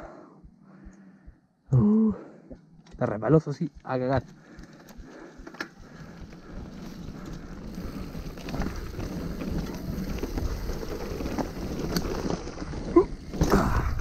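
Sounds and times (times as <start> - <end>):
bike clicking and rattling: 3.9 - 14.0
tyres rolling over loose dirt: 4.2 - 14.0.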